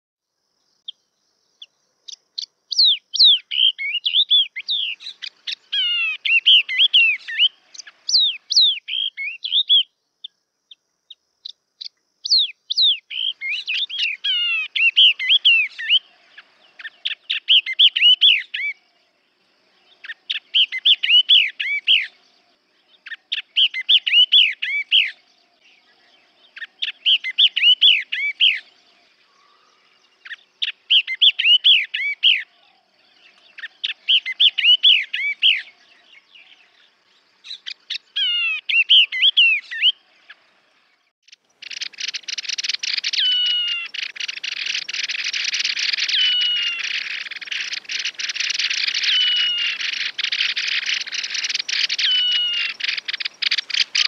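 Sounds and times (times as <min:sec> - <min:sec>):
bird singing falling whistles: 0:23.0 - 0:25.2, 0:26.6 - 0:28.6, 0:30.2 - 0:32.5, 0:33.4 - 0:35.8, 0:37.5 - 0:40.0, 0:41.6 - 0:54.0.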